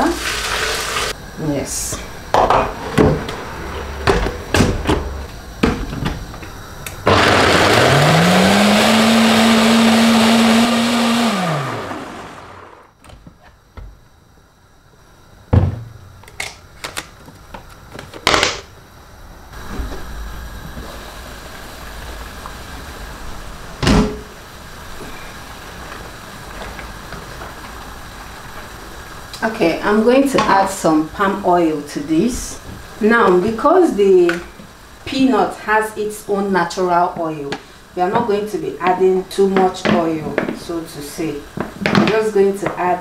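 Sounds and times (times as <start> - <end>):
blender motor grinding: 7.0 - 12.9.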